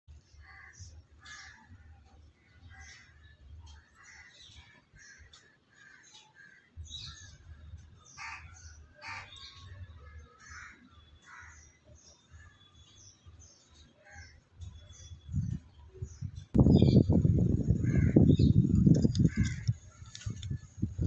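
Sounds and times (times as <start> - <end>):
faint birds calling: 0.2 - 20.7
harsh bird calls: 0.3 - 20.6
low wind rumble: 14.6 - 21.0.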